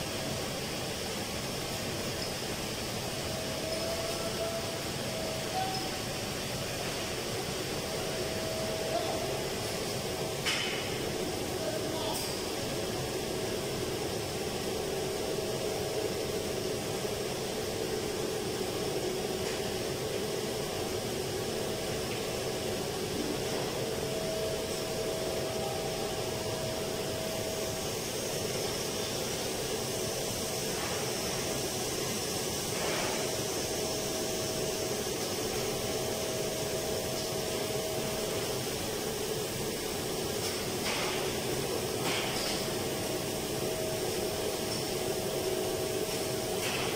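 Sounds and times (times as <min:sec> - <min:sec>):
faint steady whine: 0:00.0 - 0:46.9
ventilation machinery humming: 0:00.0 - 0:46.9.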